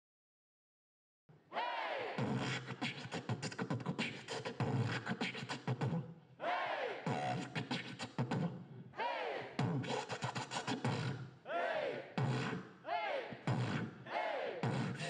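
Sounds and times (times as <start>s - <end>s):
beatboxing into microphone: 2.2s - 6.1s, 7.0s - 8.7s, 9.6s - 11.4s, 12.1s - 14.0s, 14.6s - 15.0s
swooping vocal sounds: 13.5s - 15.0s.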